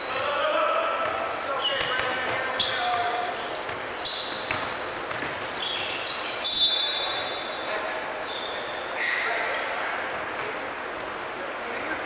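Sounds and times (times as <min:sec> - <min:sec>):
sneakers squeaking: 0:00.0 - 0:10.7
basketball bouncing: 0:01.8 - 0:05.4.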